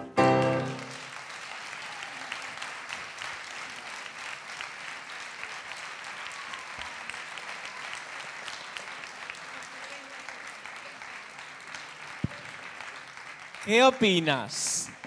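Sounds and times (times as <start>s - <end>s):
piano chord ringing: 0.0s - 0.9s
audience applauding: 0.3s - 15.0s.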